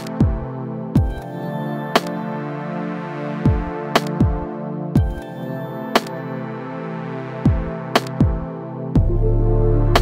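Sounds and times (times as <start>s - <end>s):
synth chords: 0.0s - 10.0s
deep kick drum: 5.0s - 5.2s, 9.0s - 9.3s.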